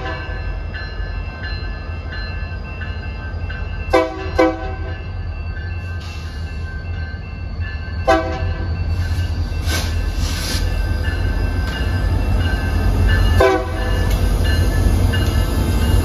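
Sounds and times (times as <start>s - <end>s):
crossing bell ringing: 0.0s - 16.0s
diesel locomotive rumbling: 0.0s - 16.0s
locomotive horn blasts: 3.9s - 4.9s, 8.1s - 8.6s, 13.4s - 13.9s.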